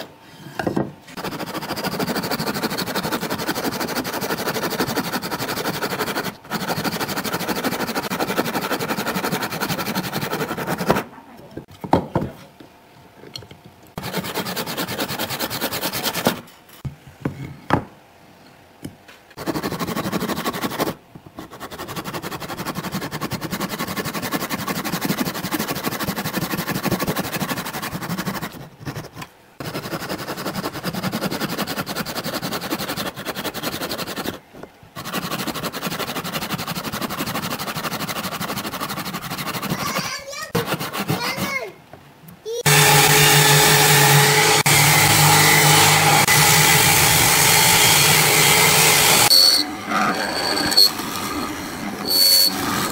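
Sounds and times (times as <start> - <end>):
hand saw rasping through wood: 1.2 - 11.1, 14.0 - 16.4, 19.4 - 34.4, 35.0 - 41.6.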